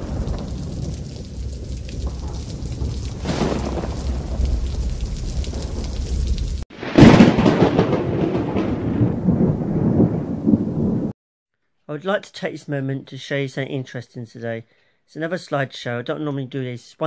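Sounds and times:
steady rain: 0.0 - 11.1
loud thunderclap: 0.0 - 11.2
low rolling thunder rumble: 0.0 - 11.2.

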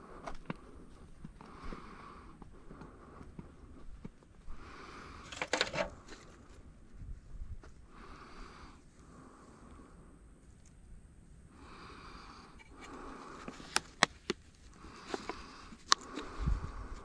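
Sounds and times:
breathing close to microphone: 0.0 - 6.7, 7.8 - 10.3, 11.5 - 17.0.

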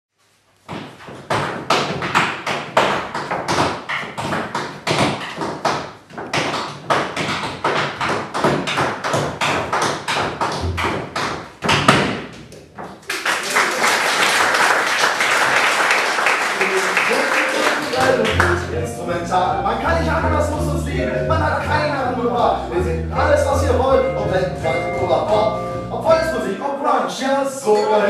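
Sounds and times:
sharp percussive knocks and slaps: 0.7 - 13.0
applause: 13.0 - 18.6.

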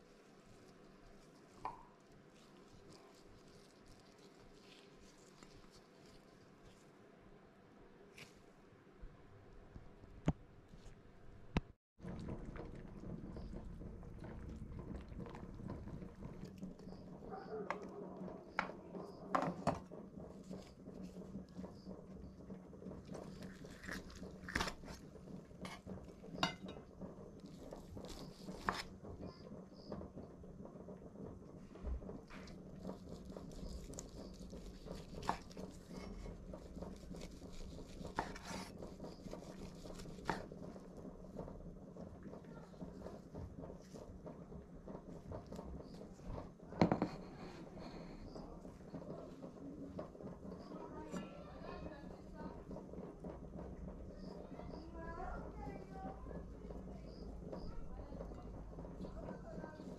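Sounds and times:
broth simmering with bubbling: 0.0 - 59.9
knife slicing meat: 33.0 - 40.6.

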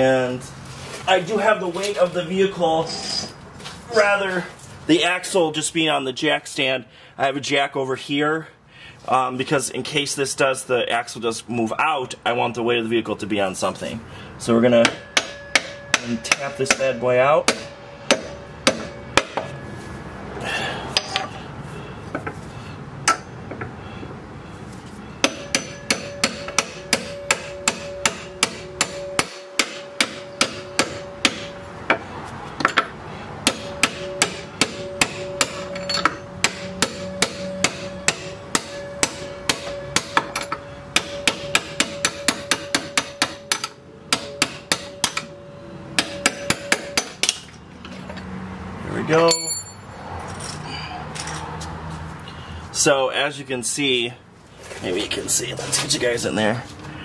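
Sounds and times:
hammer striking metal: 14.7 - 19.8, 20.9 - 21.4, 23.0 - 23.7, 25.2 - 32.0, 32.6 - 48.3, 49.2 - 49.9.

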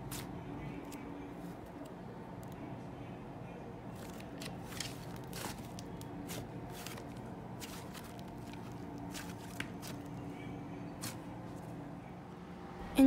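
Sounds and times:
faint steady hum: 0.0 - 13.0
slime squishing and crackling: 3.9 - 10.2.

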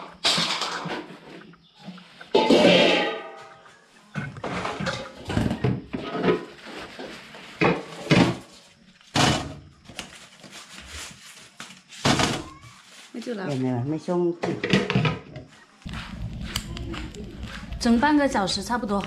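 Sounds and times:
metal steamer pot clanking: 2.3 - 3.4.

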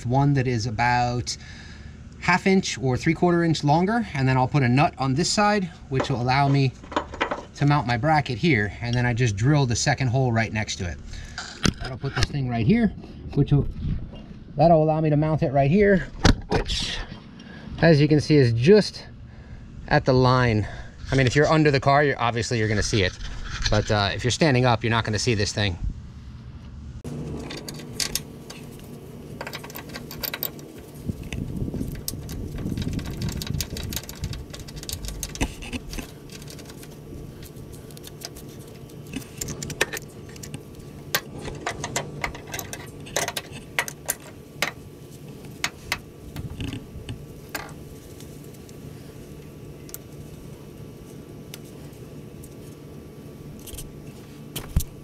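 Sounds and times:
low whirr: 0.0 - 55.0
metal hardware clinking: 27.3 - 44.8.

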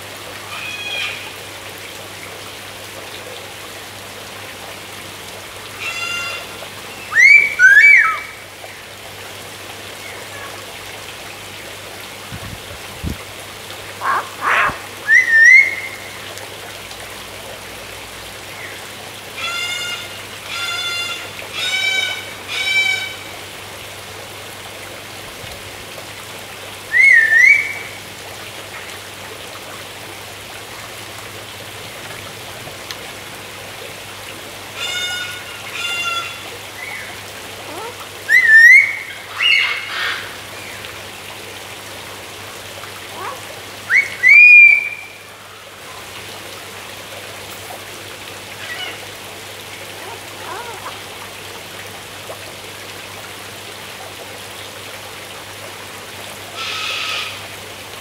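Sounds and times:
harsh bird calls: 14.0 - 15.8
cockatoo whistling: 14.4 - 15.8.

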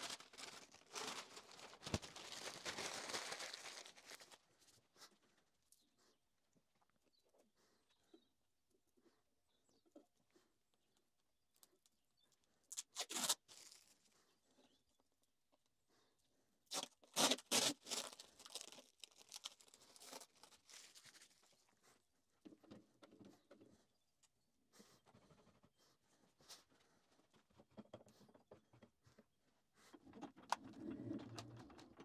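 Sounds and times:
tearing and crinkling: 0.0 - 4.4, 12.7 - 14.2, 16.7 - 21.6.

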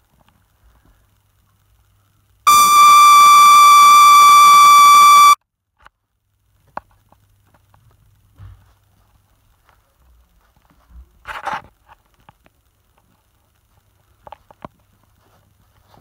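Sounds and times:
loud electronic beep: 2.5 - 5.4.

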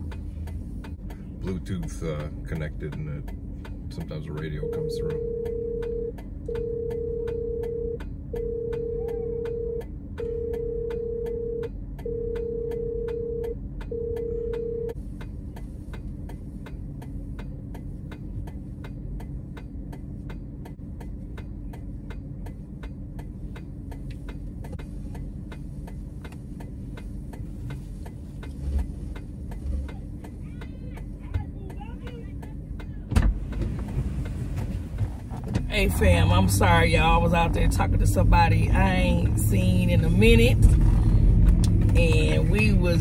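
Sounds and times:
warning chime beeps: 4.6 - 14.9.

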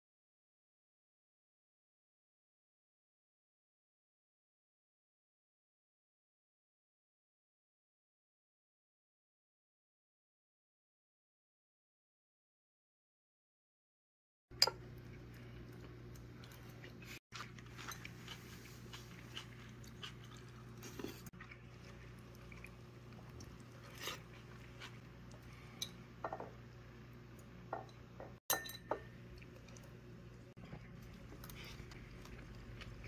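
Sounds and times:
faint low hum: 14.6 - 33.0
utensils clinking on bowl: 27.8 - 29.1.

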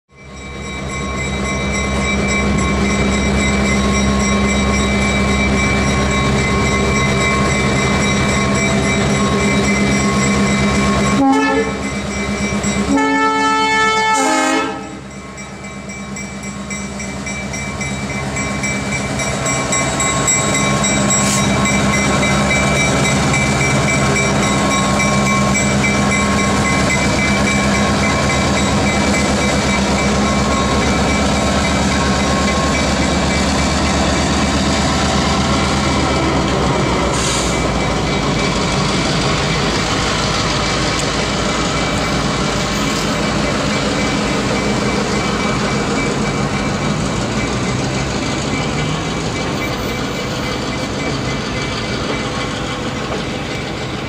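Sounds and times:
diesel locomotive engine running: 0.1 - 54.0
locomotive horn blasts: 11.1 - 11.9, 12.9 - 15.0.

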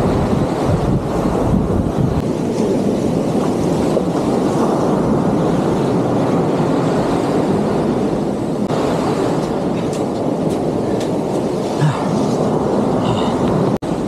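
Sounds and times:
waves breaking on sand: 0.0 - 14.0.

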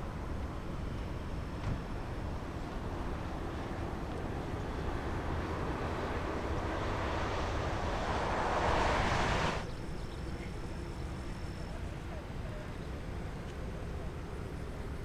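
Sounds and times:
distant jet engines rumbling: 0.1 - 10.6
rushing noise: 2.9 - 9.7.

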